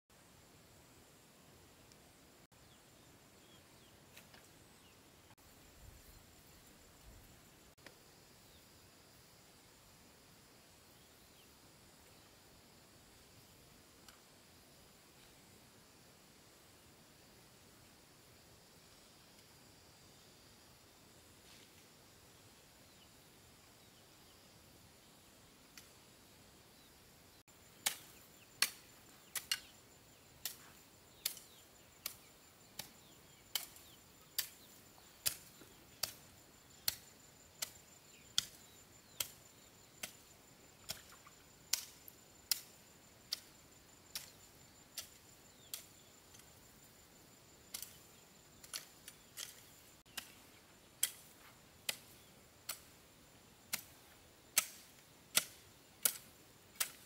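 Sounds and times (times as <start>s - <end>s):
hand tool chopping: 54.6s - 57.0s.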